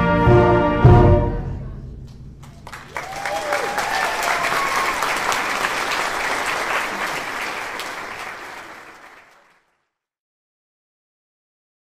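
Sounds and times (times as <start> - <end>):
crowd applauding: 2.4 - 9.8.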